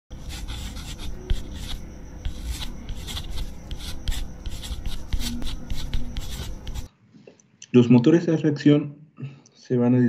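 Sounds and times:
pen scratching on paper: 0.1 - 6.9.

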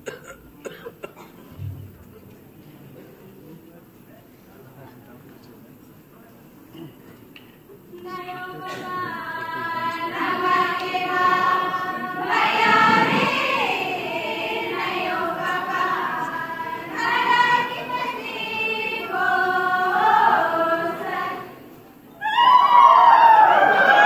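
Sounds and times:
women's chorus singing folk song: 8.1 - 22.0.

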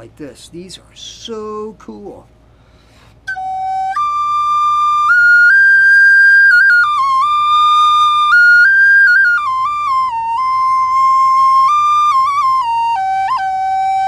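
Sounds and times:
flute playing slow melody: 2.9 - 14.0.

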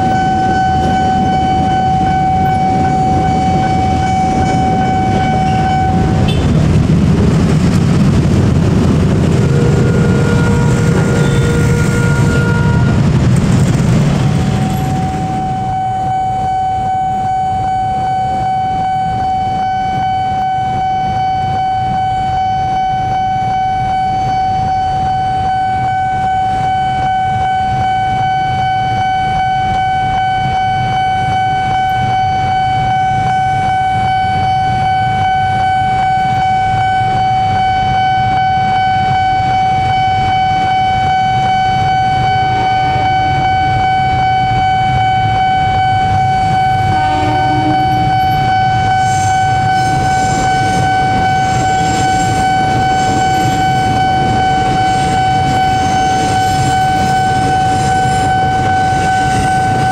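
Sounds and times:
level crossing warning siren: 0.0 - 59.9
low rumble of traffic: 0.0 - 59.9.

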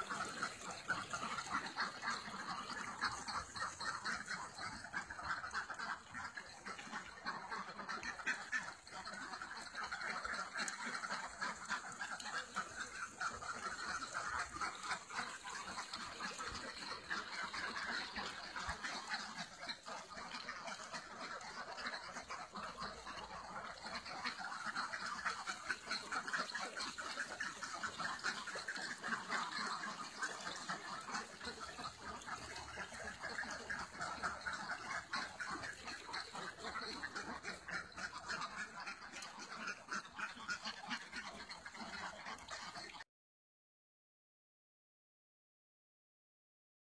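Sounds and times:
ducks quacking: 0.0 - 43.0.

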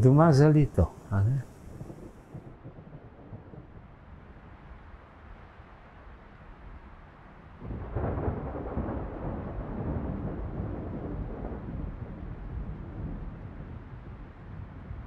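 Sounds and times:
thunder rumbling: 0.0 - 3.9, 7.6 - 14.1.

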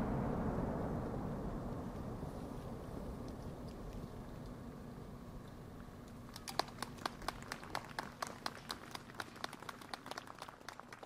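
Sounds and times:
faint low rumble: 0.0 - 11.0
audience clapping: 6.3 - 11.0.

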